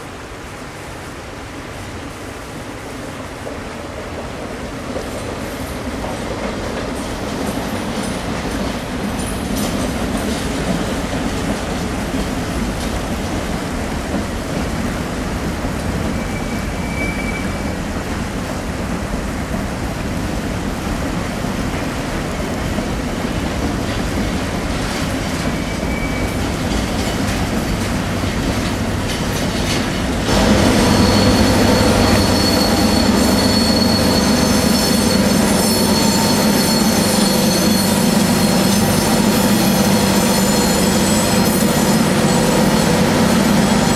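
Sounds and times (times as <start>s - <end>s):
freight train wheels rumbling: 1.6s - 43.9s
diesel locomotive engine drone: 9.9s - 43.9s
high wheel squeals: 16.0s - 18.0s, 25.0s - 27.3s, 29.4s - 43.9s.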